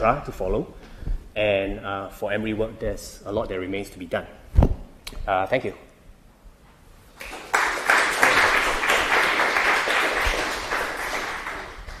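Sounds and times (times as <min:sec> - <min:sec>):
audience applauding: 0:07.2 - 0:12.0.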